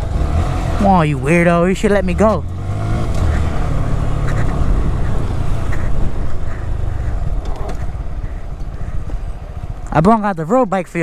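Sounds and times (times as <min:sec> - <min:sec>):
tyre noise on wet road: 0:00.0 - 0:10.2
motorcycle engine hum: 0:00.0 - 0:11.0
wind rush on microphone: 0:02.8 - 0:10.0.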